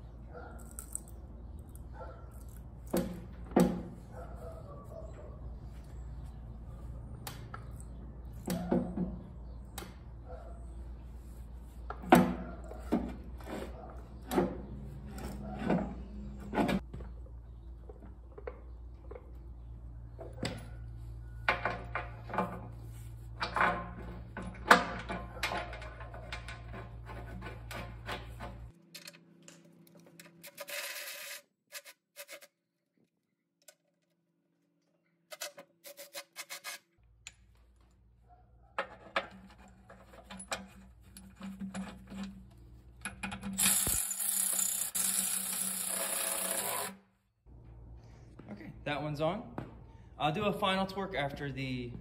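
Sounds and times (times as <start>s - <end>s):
cordless ratchet whining: 43.6s - 46.9s.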